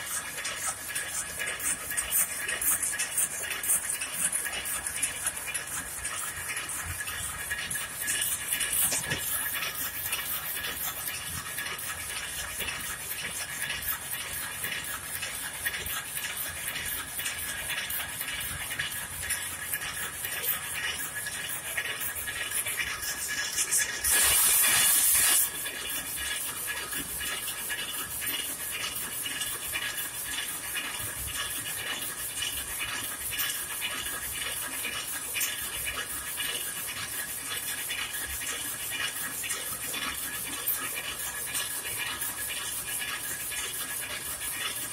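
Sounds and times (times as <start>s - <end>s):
loud hiss: 24.0s - 25.4s.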